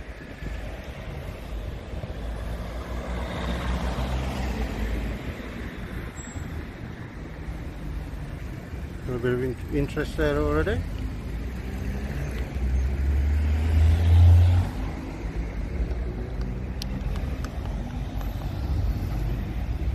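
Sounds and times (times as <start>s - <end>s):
vehicle driving past: 11.5s - 19.3s.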